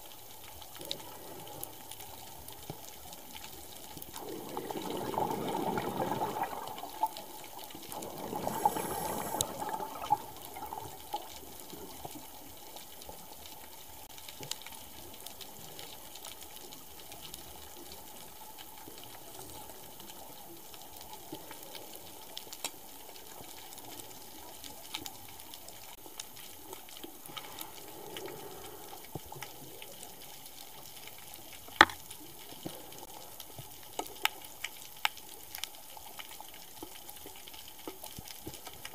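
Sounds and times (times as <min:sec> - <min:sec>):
low steady underwater hiss: 0:00.0 - 0:38.9
scuba exhaled bubbles rushing: 0:04.1 - 0:11.6.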